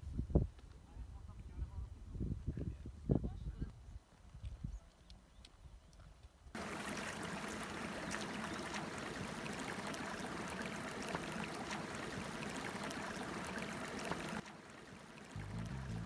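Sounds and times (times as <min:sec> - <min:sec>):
boots splashing through water: 0:06.6 - 0:16.0
shallow water rushing over stones: 0:06.6 - 0:16.0.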